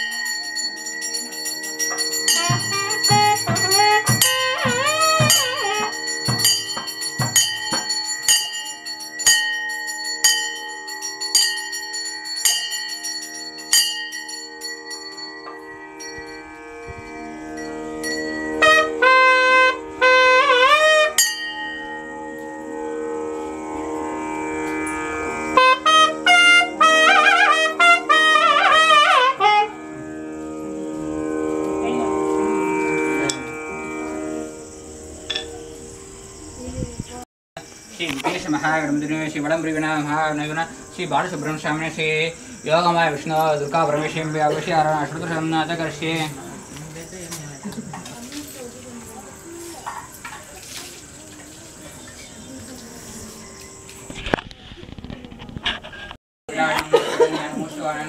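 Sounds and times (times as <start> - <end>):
hand bell ringing: 0.0 - 16.5, 21.2 - 22.4
wind instrument melody: 0.0 - 37.2, 38.1 - 47.4
steady drone: 9.9 - 37.2.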